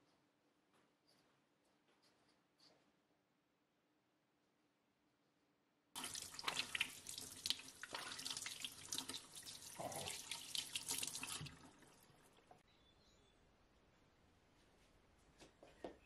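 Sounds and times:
tap water splashing on hands: 6.0s - 11.7s.

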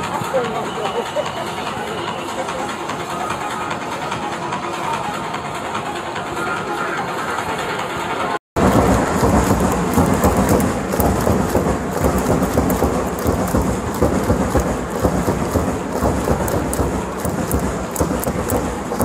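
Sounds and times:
stadium crowd din: 0.0s - 19.0s
crowd clapping: 8.6s - 19.0s.

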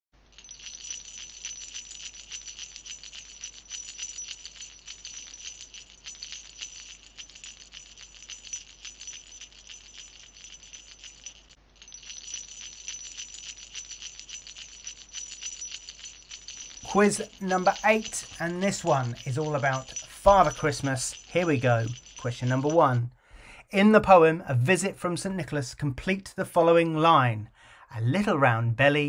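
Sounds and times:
sleigh bells jingling: 0.2s - 23.2s.

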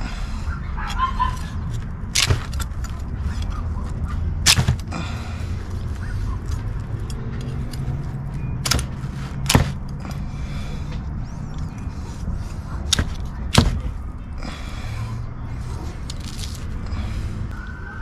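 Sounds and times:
knife cutting and scraping fish: 0.9s - 4.9s, 12.1s - 13.9s.

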